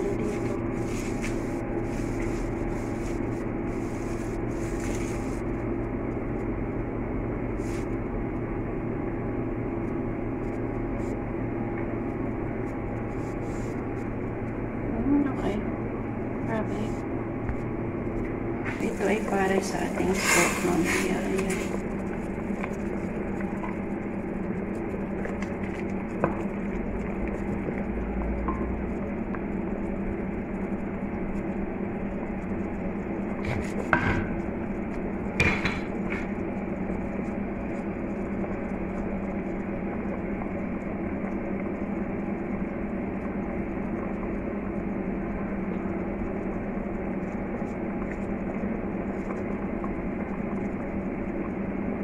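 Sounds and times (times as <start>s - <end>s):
kitchen hum: 0.0s - 52.0s
pot of broth boiling: 0.0s - 52.0s
utensil clanking against pot: 35.4s - 36.3s.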